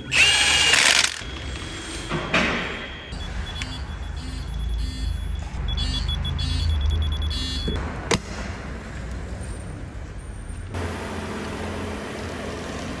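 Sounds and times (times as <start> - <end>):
torque wrench beeping: 2.8 - 7.8.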